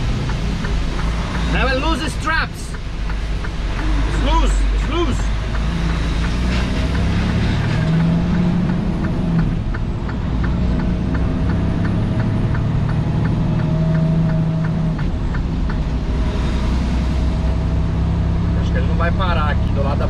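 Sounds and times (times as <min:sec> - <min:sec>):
diesel engine and road drone: 0:00.0 - 0:20.0.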